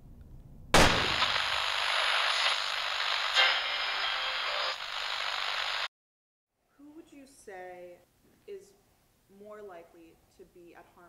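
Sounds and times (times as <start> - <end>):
sudden loud hit: 0.8 - 1.5
harsh static-like hiss: 1.0 - 5.9.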